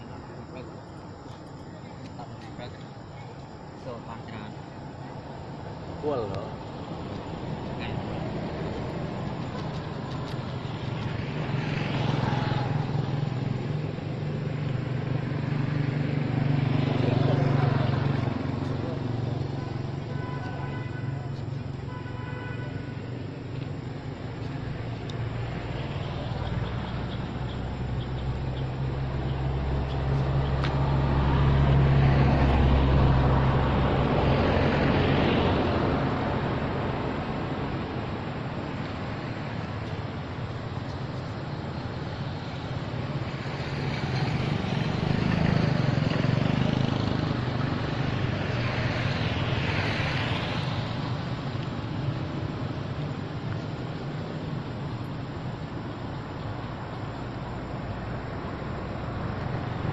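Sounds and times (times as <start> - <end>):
vehicle engine humming: 0.0 - 59.9.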